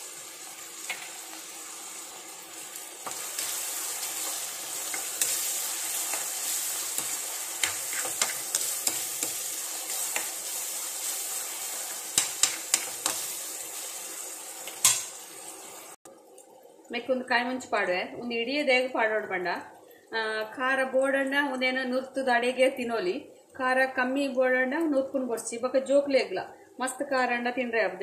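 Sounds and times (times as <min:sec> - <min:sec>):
vegetables sizzling in oil: 0:00.0 - 0:16.0
spatula scraping a pan: 0:03.0 - 0:13.4.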